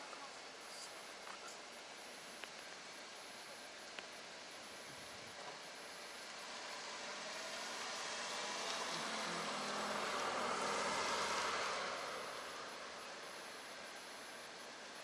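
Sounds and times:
car driving past: 6.3s - 13.4s.

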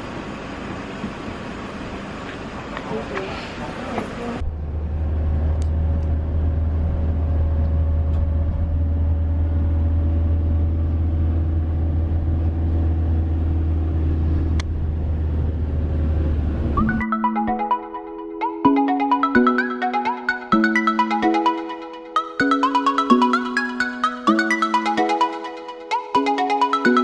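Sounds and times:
minivan driving rumble: 0.0s - 18.8s.

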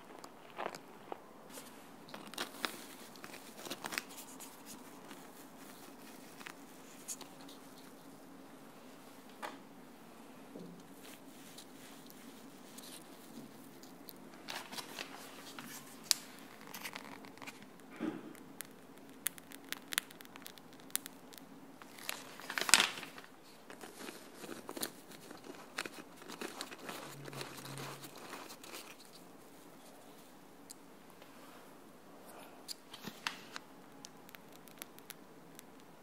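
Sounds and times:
plastic piping bag crinkling: 0.0s - 8.4s, 10.8s - 30.0s, 32.8s - 36.0s
sponge cake crackling and tearing: 2.0s - 8.0s, 11.0s - 29.2s.

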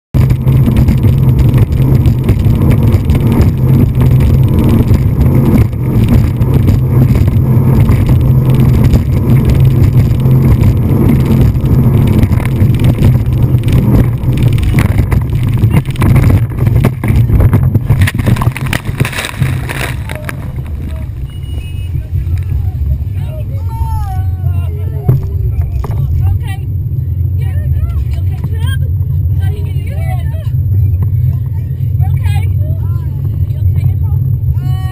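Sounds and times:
wind over microphone: 0.1s - 34.9s
boat hitting waves: 0.2s - 26.6s
speedboat engine drone: 0.2s - 34.9s.

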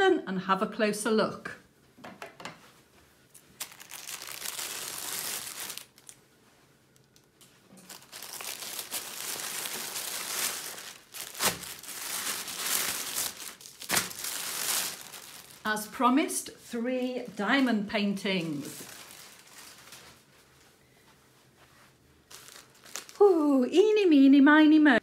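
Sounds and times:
plastic mailing bag crinkling: 3.4s - 6.2s, 7.0s - 16.0s, 17.0s - 20.3s, 22.2s - 23.4s.

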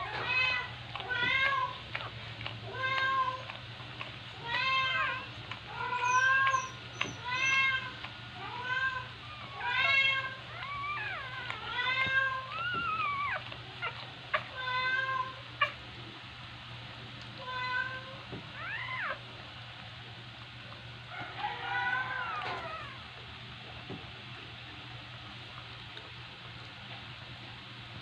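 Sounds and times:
newborn puppies squealing: 4.8s - 15.0s, 18.6s - 19.2s, 21.5s - 23.0s.

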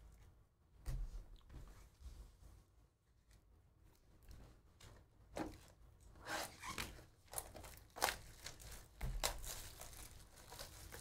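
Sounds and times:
plastic shrink wrap tearing: 6.5s - 11.0s.

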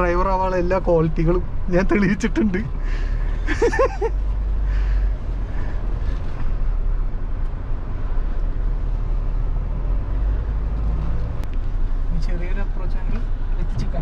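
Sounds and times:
diesel engine rumble from inside cabin: 0.0s - 9.0s.

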